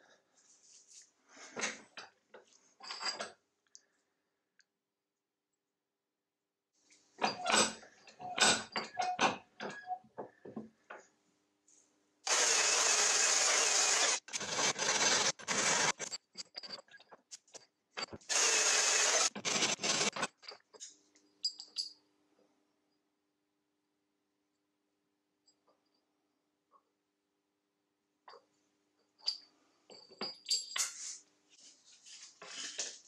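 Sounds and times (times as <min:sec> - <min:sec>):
electric drill drilling into metal: 0:12.3 - 0:16.1, 0:18.3 - 0:20.2
metal clinks and knocks: 0:16.0 - 0:18.3, 0:19.8 - 0:22.0, 0:29.0 - 0:31.2.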